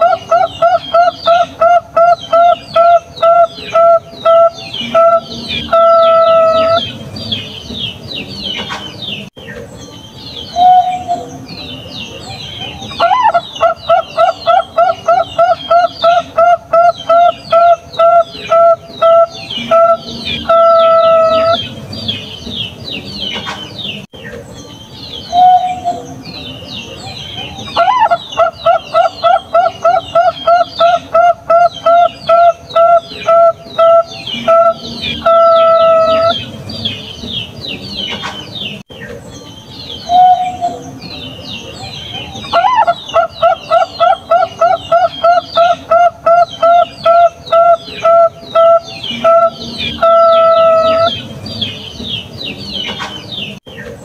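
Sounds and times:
dove cooing: 0.0s - 7.0s, 10.6s - 11.4s, 12.6s - 22.3s, 25.3s - 26.2s, 27.4s - 37.1s, 42.1s - 51.8s
small birds chirping: 0.0s - 54.0s.

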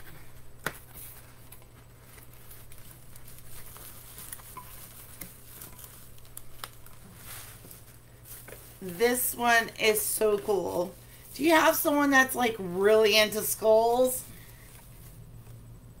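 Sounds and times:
packaging rustling: 0.1s - 11.3s.

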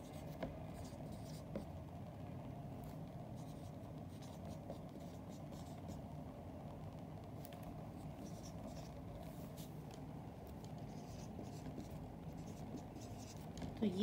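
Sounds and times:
marker squeaking on whiteboard: 0.0s - 1.6s, 3.4s - 6.0s, 8.0s - 9.0s, 10.7s - 13.8s.

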